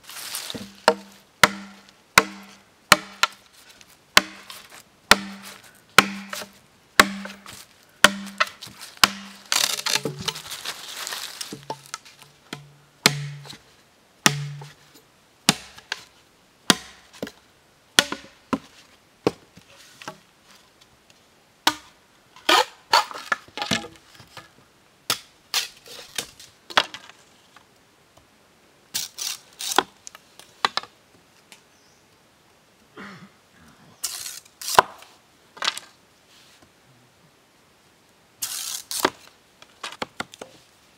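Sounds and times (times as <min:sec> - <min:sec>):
bamboo cracking and knocking: 0:00.2 - 0:03.5, 0:04.2 - 0:13.6, 0:14.2 - 0:14.8, 0:15.5 - 0:16.1, 0:16.7 - 0:17.4, 0:18.0 - 0:20.2, 0:21.6 - 0:27.7, 0:29.0 - 0:31.6, 0:34.0 - 0:35.9, 0:38.4 - 0:40.6
machete chopping bamboo: 0:00.5 - 0:03.4, 0:04.2 - 0:10.4, 0:11.5 - 0:13.6, 0:14.2 - 0:14.8, 0:15.5 - 0:16.0, 0:16.7 - 0:17.1, 0:18.0 - 0:18.6, 0:21.7 - 0:21.9, 0:34.1 - 0:35.0.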